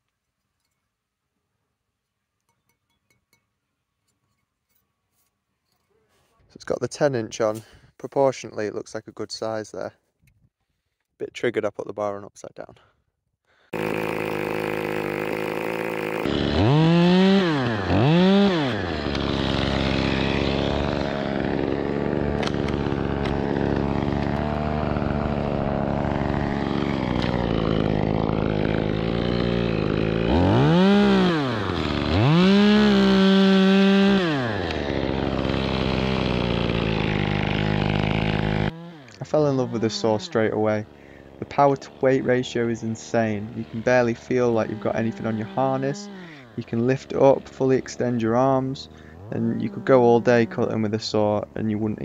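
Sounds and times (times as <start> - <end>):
chainsaw idling and revving: 13.6 - 52.0.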